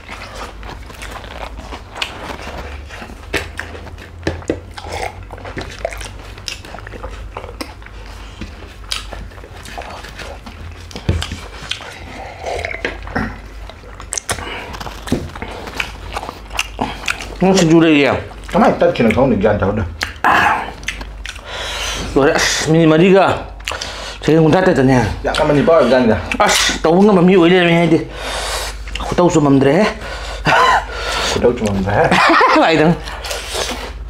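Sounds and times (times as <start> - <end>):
chewing and mouth smacks: 0.0 - 19.3, 19.9 - 22.2, 23.5 - 24.0, 28.6 - 29.2
steady low hum: 0.0 - 34.0.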